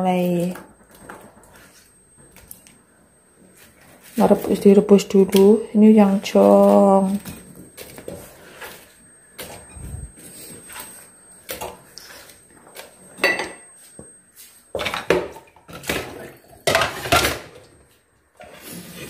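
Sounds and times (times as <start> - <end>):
pot and dishes clanking: 13.2 - 13.7, 14.8 - 17.6.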